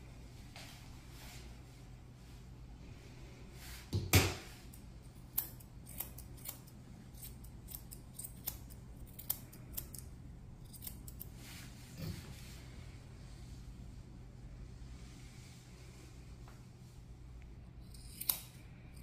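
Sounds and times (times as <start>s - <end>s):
scissors snipping fur: 4.7s - 11.4s, 17.8s - 19.0s.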